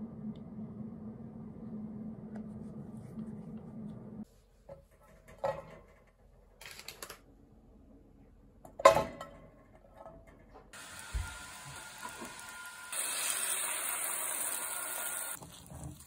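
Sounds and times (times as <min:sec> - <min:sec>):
butter sizzling in frying pan: 0:10.8 - 0:16.0.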